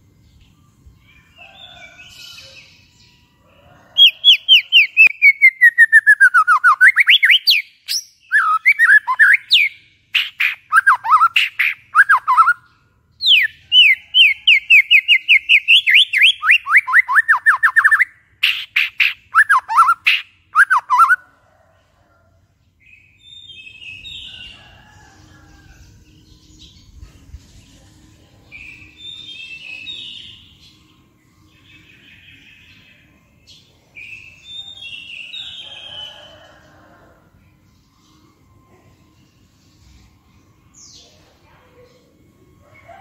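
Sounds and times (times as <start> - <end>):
bird singing rapid phrases: 4.0 - 21.2.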